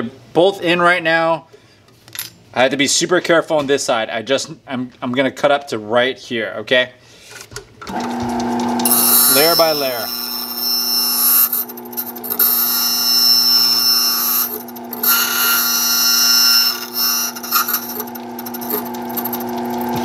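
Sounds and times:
cutter grinding metal key: 7.9s - 20.0s
machine motor hum: 7.9s - 20.0s.

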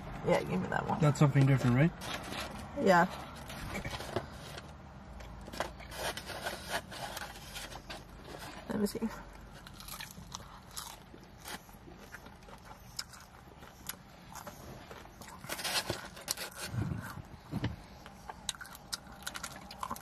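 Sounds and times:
chewing fried chicken: 9.5s - 17.2s, 18.0s - 20.0s.

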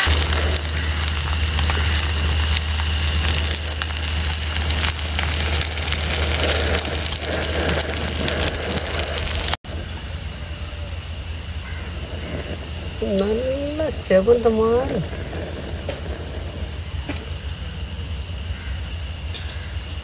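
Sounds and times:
fish sizzling in hot oil: 0.0s - 19.8s
steady low hum: 0.0s - 20.0s.

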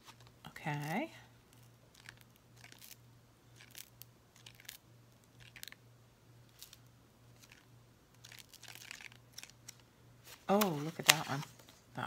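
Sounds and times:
thin paper pages turning: 1.5s - 3.0s, 3.6s - 5.8s, 6.5s - 11.9s.

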